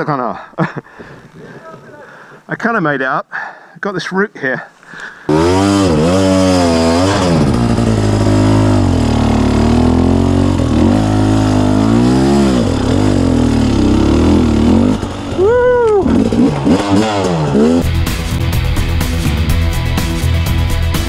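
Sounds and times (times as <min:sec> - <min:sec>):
dirt bike engine revving: 0:05.3 - 0:18.1.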